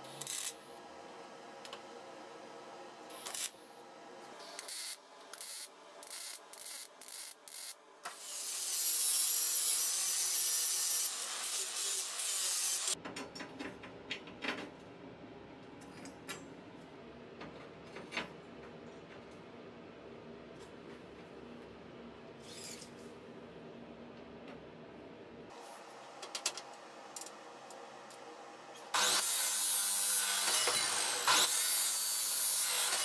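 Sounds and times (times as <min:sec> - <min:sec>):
crackling welding bursts: 0:00.1 - 0:00.7, 0:03.1 - 0:03.6, 0:04.4 - 0:13.0
angle grinder grinding metal: 0:04.4 - 0:13.0, 0:28.9 - 0:33.0.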